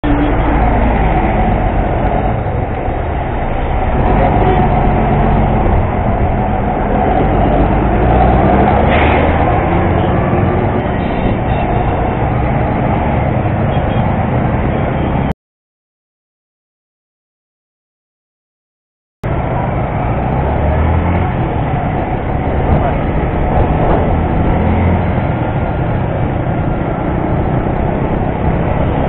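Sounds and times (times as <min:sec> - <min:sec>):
heavy traffic of buses and cars: 0:00.0 - 0:15.4, 0:19.2 - 0:29.0.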